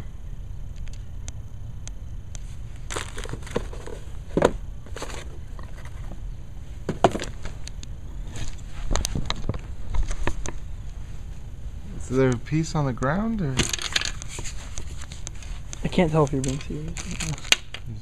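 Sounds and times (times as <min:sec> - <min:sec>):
rustling: 0:02.4 - 0:07.6, 0:13.6 - 0:17.6.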